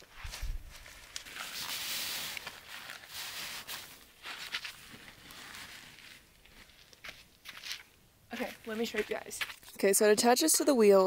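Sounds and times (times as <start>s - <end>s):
nylon fabric rustling: 0.0s - 6.9s
straps being handled: 0.0s - 7.8s.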